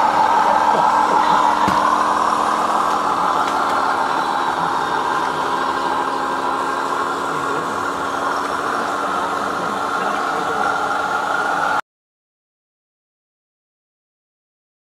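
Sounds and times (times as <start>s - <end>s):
toy truck motor hum on gravel: 0.0s - 11.8s.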